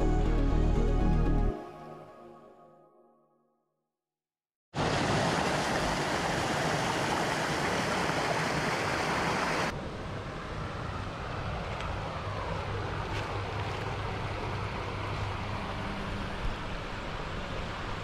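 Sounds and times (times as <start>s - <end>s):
water rushing over rocks: 4.8s - 9.7s
stream flowing: 4.8s - 9.8s.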